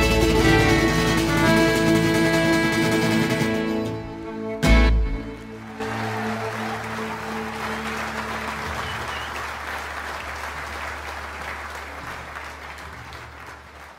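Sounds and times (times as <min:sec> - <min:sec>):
audience applauding: 0:05.2 - 0:13.9.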